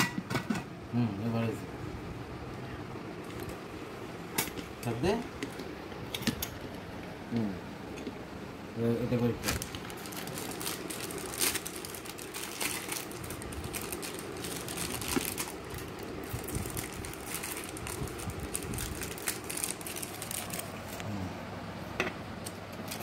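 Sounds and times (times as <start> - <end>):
plastic wrapping crinkling: 9.1 - 21.0.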